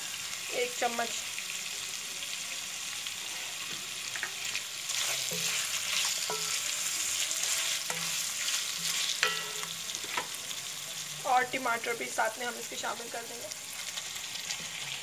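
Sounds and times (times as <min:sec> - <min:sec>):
meat sizzling in a pan: 0:00.0 - 0:15.0
spoon scraping a pan: 0:03.3 - 0:10.4.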